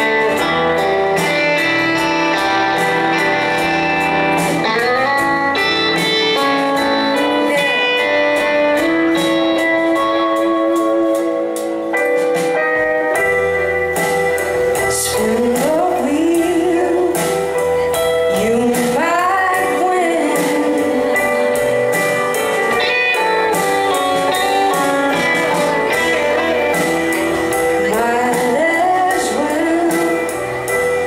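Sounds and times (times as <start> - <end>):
lead guitar bending notes: 0.0 - 18.4, 19.3 - 31.0
drums: 0.0 - 31.0
strummed guitars: 0.0 - 31.0.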